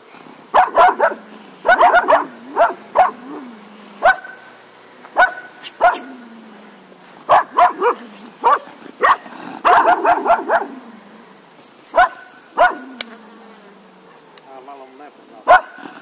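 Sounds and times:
dog barking: 0.5s - 3.4s, 4.0s - 4.5s, 5.2s - 6.2s, 7.3s - 10.8s, 11.9s - 12.9s, 14.0s - 14.4s, 15.4s - 16.0s.

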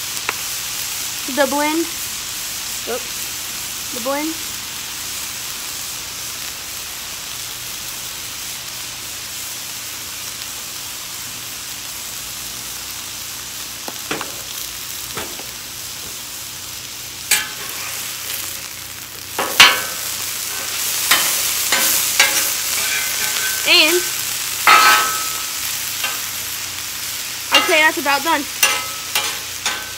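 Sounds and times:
meat sizzling on a griddle: 0.0s - 29.9s
metal spatula scraping griddle: 17.3s - 18.7s, 19.4s - 26.3s, 28.6s - 29.9s.

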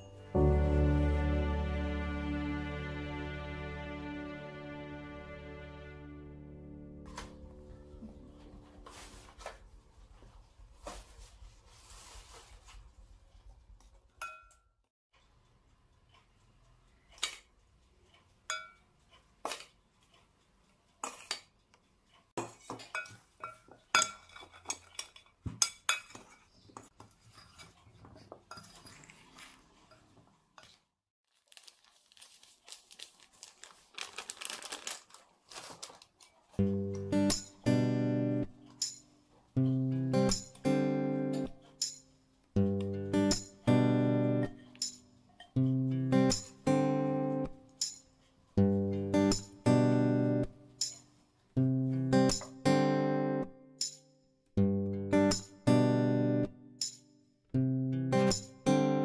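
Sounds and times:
metal spoon clinking on glass bowl: 14.2s - 14.7s, 22.8s - 26.2s.

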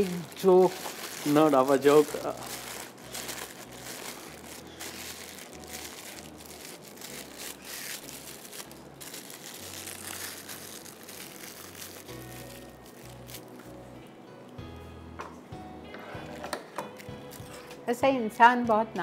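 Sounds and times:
plastic bag crinkling: 0.0s - 13.7s.

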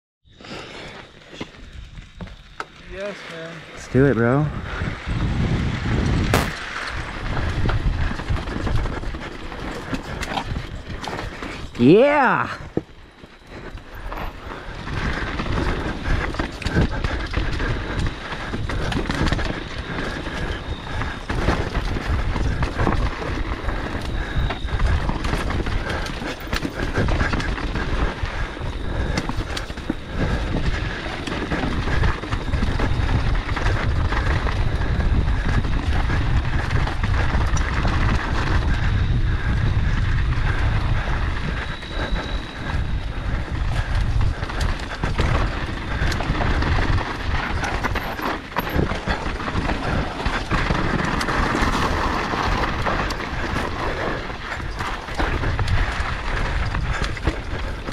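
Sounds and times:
bike rattling and knocking: 3.8s - 57.9s
tyres crunching over dirt and rock: 43.4s - 57.9s.

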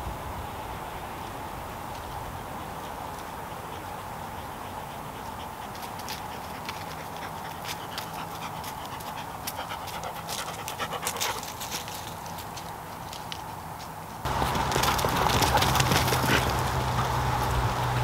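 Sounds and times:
dog panting: 2.0s - 13.3s, 14.3s - 18.0s.

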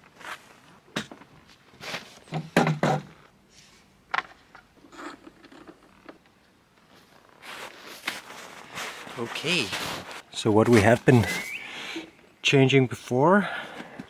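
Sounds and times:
quiet scuffs: 6.8s - 11.5s.

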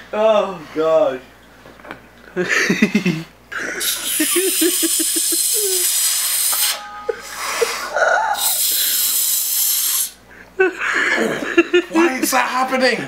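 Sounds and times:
man hissing through teeth: 3.8s - 6.8s, 7.4s - 10.2s.

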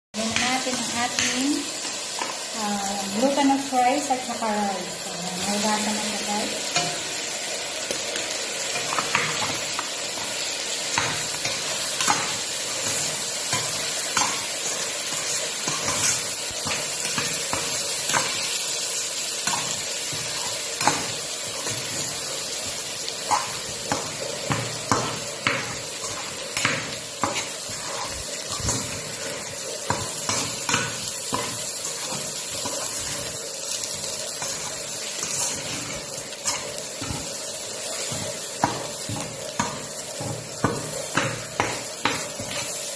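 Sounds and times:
rice sizzling in pot: 0.2s - 42.9s
metal spatula scraping pot: 19.4s - 42.8s.

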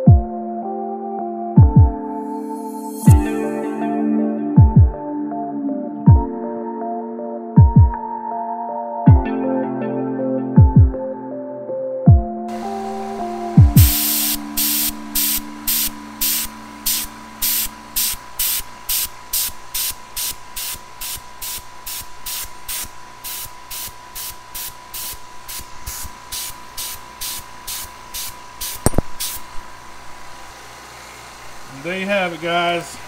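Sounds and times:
airbrush spraying in bursts: 12.5s - 29.6s.

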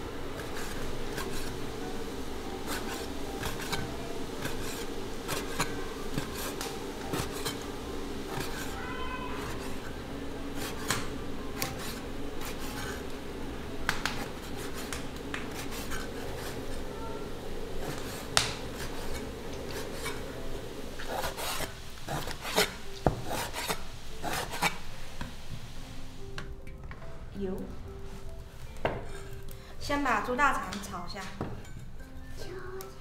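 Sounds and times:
rasping rubbing food preparation: 0.0s - 25.7s.

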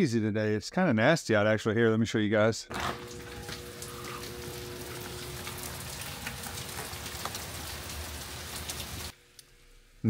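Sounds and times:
heavy rain falling: 2.7s - 9.1s.

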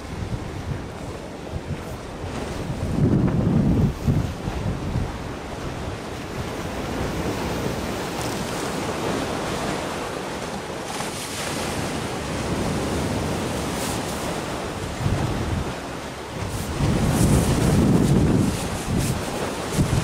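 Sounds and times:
choppy sea waves: 0.0s - 20.0s
wind buffeting microphone: 0.0s - 20.0s.

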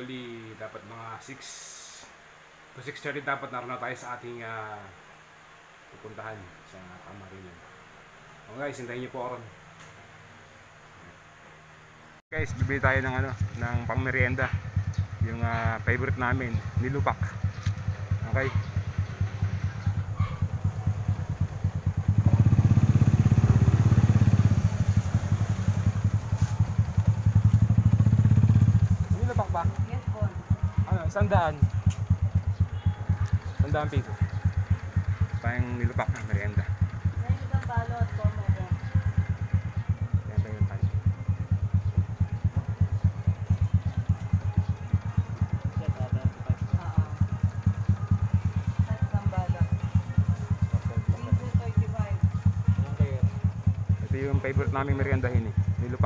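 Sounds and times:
motorcycle engine rumbling: 12.3s - 56.0s.

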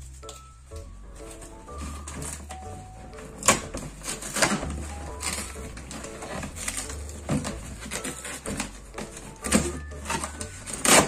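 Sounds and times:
cardboard box tape pulled: 3.4s - 11.0s.

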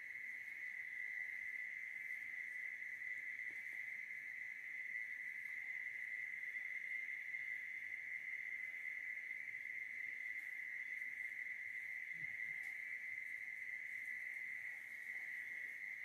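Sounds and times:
insects trilling: 0.0s - 16.0s.

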